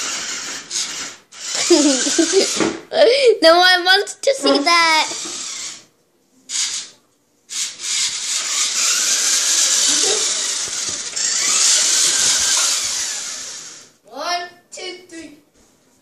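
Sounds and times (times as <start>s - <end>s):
toy truck motor and gears whirring: 0.0s - 2.7s, 4.9s - 5.9s, 6.5s - 14.0s.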